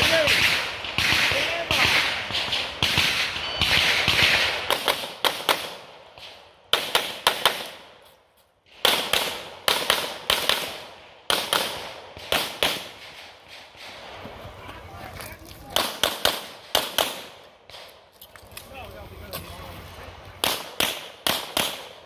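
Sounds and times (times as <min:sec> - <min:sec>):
pistol shots with echo: 0:00.0 - 0:07.9, 0:08.7 - 0:13.9, 0:15.7 - 0:17.9, 0:20.4 - 0:22.0.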